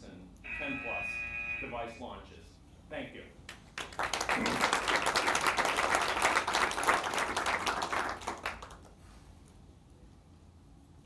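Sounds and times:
audience applauding: 3.7s - 9.0s.

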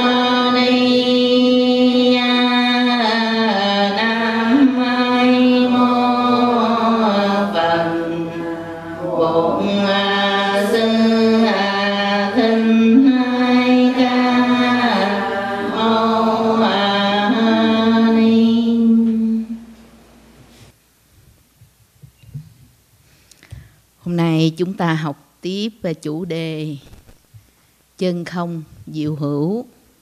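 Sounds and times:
voices chanting slowly: 0.0s - 19.8s.

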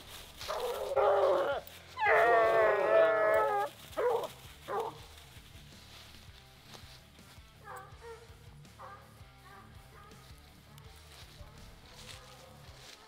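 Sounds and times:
hound baying: 0.4s - 5.2s, 7.6s - 10.4s
dog barking: 4.0s - 5.0s, 7.6s - 10.4s.

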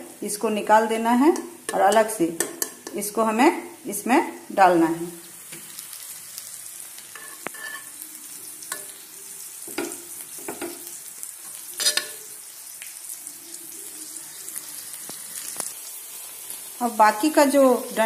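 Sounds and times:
onions sizzling in oil: 0.0s - 18.0s
spatula scraping and knocking pan: 7.1s - 7.9s, 9.7s - 10.9s, 11.8s - 12.2s.

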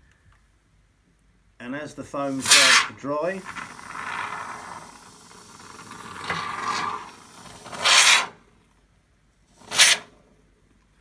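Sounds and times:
foam can spraying: 2.2s - 8.4s, 9.6s - 10.1s.

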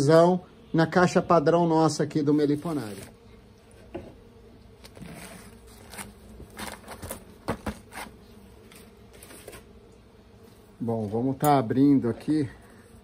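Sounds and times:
bees buzzing: 0.0s - 13.0s
plastic sheet crackling: 4.8s - 8.1s.

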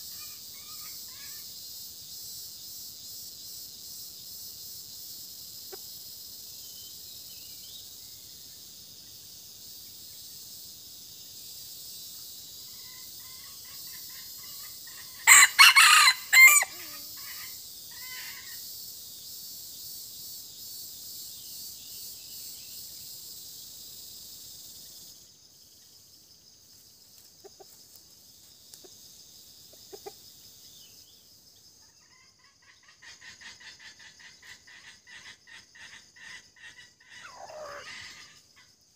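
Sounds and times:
high-pitched insect drone: 0.0s - 26.4s, 27.1s - 38.9s
rooster crowing: 15.2s - 17.3s
soft clucks: 29.7s - 30.2s.

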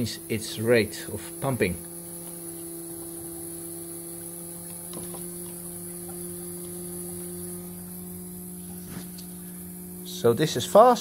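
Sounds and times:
electric fuel pump humming: 0.0s - 11.0s.

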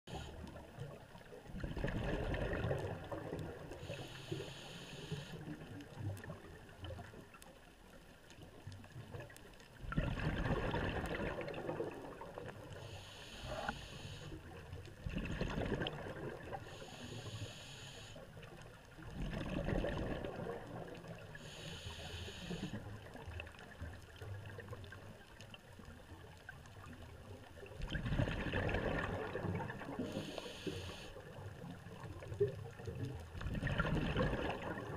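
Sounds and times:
underwater exhale bubbles: 0.1s - 7.3s, 9.0s - 24.9s, 27.6s - 34.9s
regulator inhale hiss: 3.7s - 5.6s, 12.7s - 14.5s, 16.6s - 18.6s, 21.3s - 22.9s, 29.9s - 31.3s.

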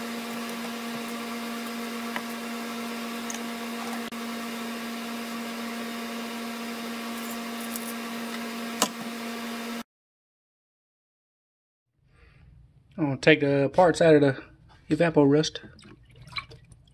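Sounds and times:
machine hum: 0.0s - 9.8s.

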